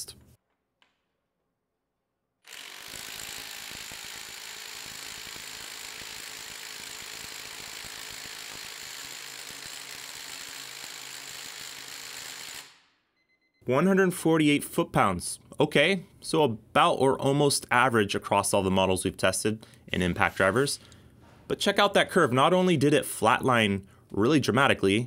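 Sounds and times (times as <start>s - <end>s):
impact driver hammering: 2.5s - 12.8s.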